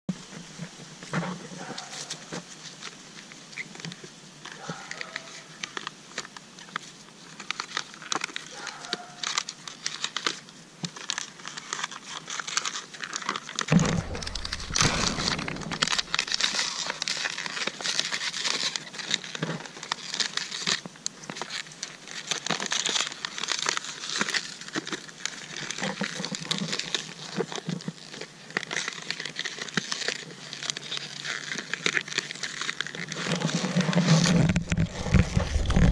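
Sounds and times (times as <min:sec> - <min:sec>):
plastic bottle crinkling: 0:03.7 - 0:35.9
loud low bump: 0:13.7 - 0:16.6.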